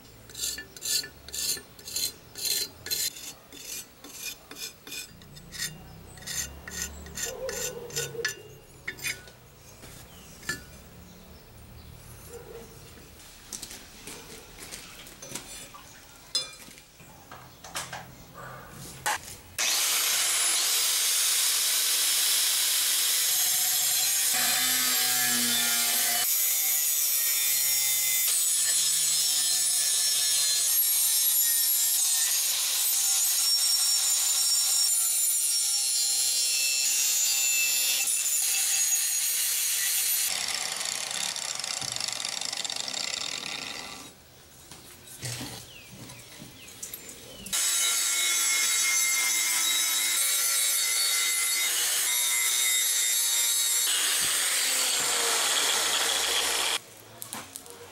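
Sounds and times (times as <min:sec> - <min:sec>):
angle grinder grinding steel: 0:00.3 - 0:09.4, 0:19.6 - 0:44.2, 0:47.5 - 0:56.8.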